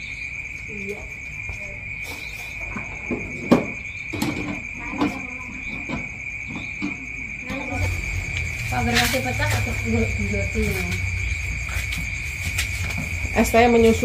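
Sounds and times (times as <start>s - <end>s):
crickets chirring: 0.0s - 14.0s.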